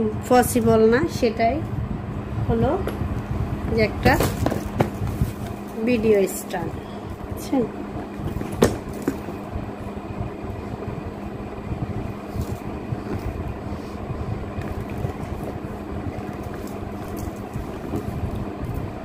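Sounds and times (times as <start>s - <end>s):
faint hum: 0.0s - 19.0s
cardboard box tapping: 4.0s - 5.2s.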